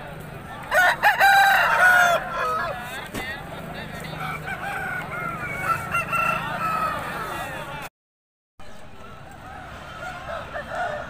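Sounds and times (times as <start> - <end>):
voices: 0.0 - 7.9, 8.6 - 11.0
roosters crowing: 0.4 - 3.1, 3.9 - 7.8, 9.1 - 11.0.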